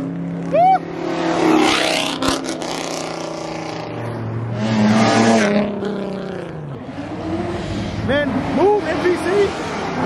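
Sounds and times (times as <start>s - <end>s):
sports car engine revving: 0.4s - 10.0s.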